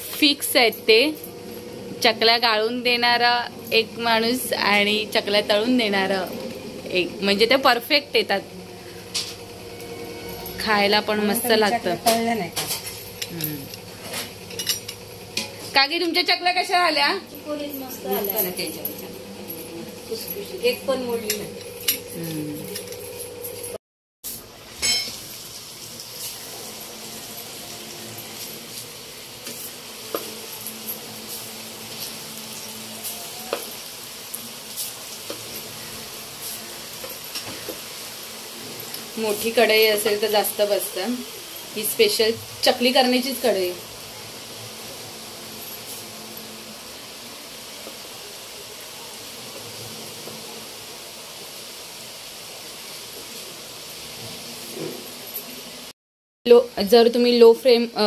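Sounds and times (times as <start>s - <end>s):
dough sizzling in hot oil: 24.2s - 55.9s.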